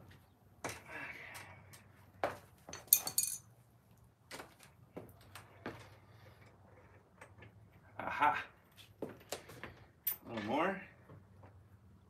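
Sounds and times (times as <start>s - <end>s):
ringing metal clink: 2.8s - 3.4s.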